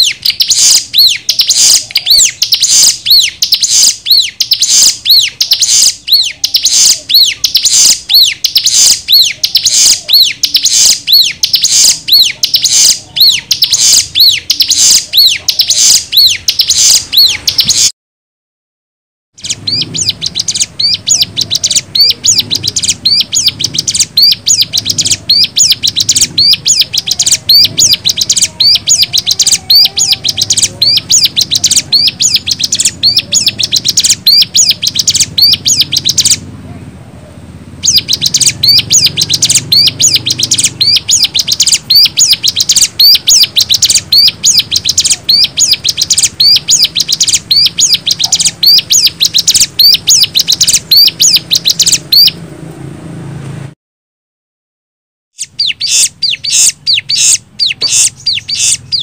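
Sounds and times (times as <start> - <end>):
bird song of high notes: 0.0 - 17.9, 19.4 - 36.5, 37.8 - 52.4, 55.4 - 59.0
faint low hum: 19.4 - 53.7.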